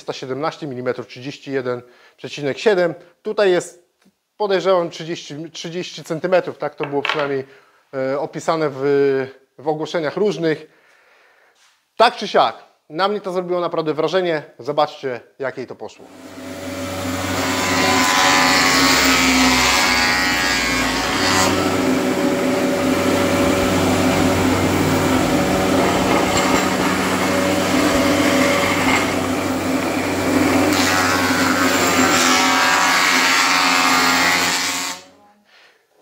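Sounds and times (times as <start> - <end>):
thickness planer cutting wood: 16.0 - 35.1
loud steady machine hum: 21.0 - 32.0.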